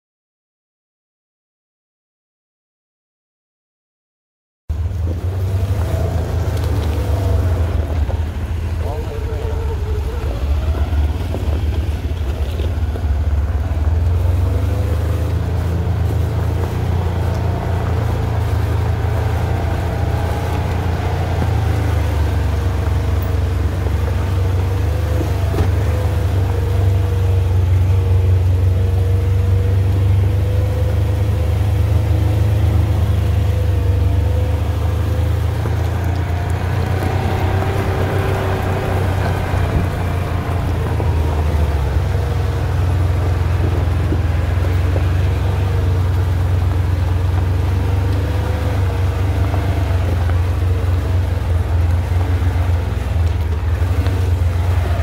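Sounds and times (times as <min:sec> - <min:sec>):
off-road vehicle engine running: 0:04.7 - 0:55.0.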